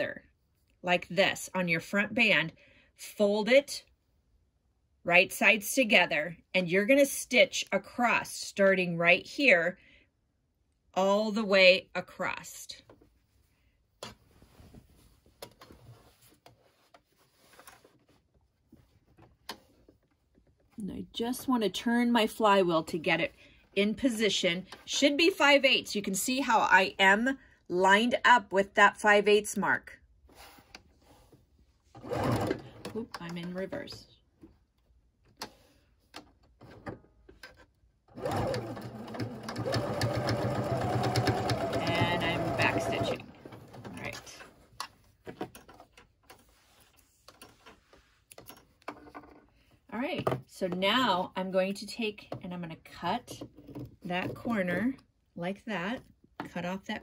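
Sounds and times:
fabric rustling: 0:13.0 - 0:20.8
electric sewing machine stitching: 0:32.0 - 0:32.8, 0:38.1 - 0:43.9.

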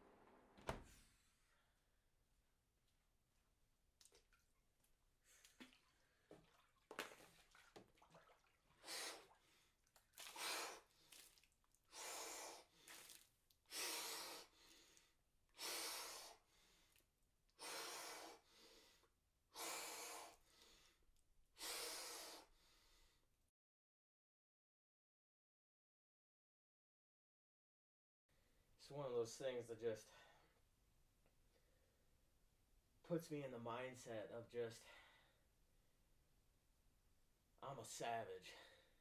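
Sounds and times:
water splashing: 0:05.5 - 0:11.6
man breathing hard: 0:11.9 - 0:12.9, 0:13.7 - 0:17.0, 0:17.6 - 0:21.0, 0:21.6 - 0:23.2.

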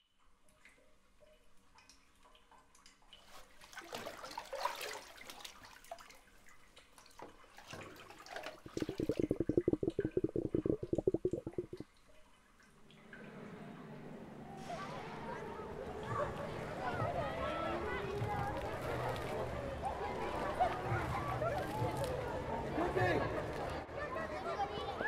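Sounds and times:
water sloshing and splashing: 0:07.5 - 0:11.8
rapid water bubbling: 0:08.5 - 0:11.8
water dripping: 0:08.6 - 0:11.8.

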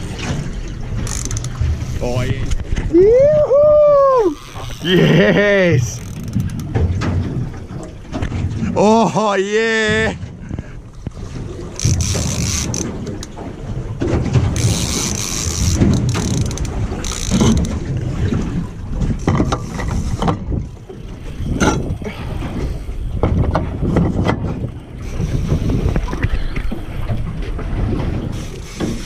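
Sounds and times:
wind rumble on microphone: 0:00.0 - 0:08.8, 0:09.8 - 0:29.0
fishing reel cranking: 0:01.0 - 0:02.3, 0:04.2 - 0:06.6, 0:11.8 - 0:13.3, 0:14.6 - 0:17.7.

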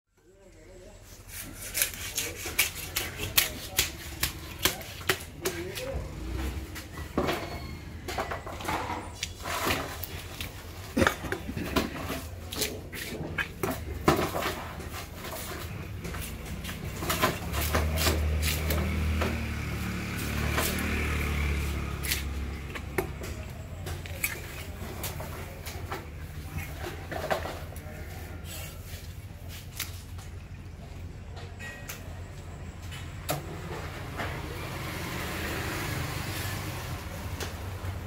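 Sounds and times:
knife chopping fish on wood: 0:01.3 - 0:06.0, 0:16.7 - 0:26.1.

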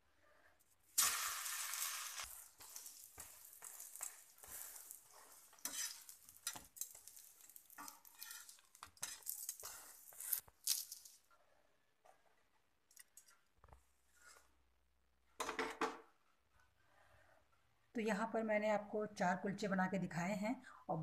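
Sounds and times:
light sizzling: 0:00.8 - 0:11.3
metal spatula scraping on griddle: 0:01.0 - 0:10.5.

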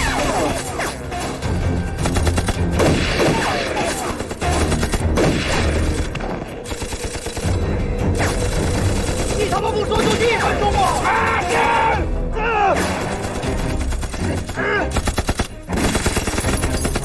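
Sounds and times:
dramatic music score: 0:00.0 - 0:17.0
gunshots: 0:02.0 - 0:11.6.

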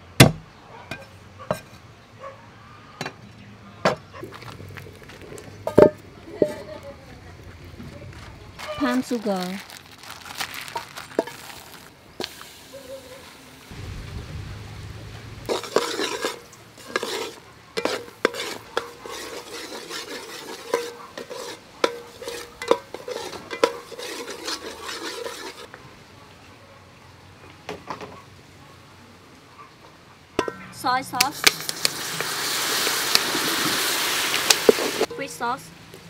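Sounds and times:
caramel bubbling and sizzling: 0:08.6 - 0:25.7, 0:31.2 - 0:36.0
metal spoon scraping in a pot: 0:15.5 - 0:25.7.

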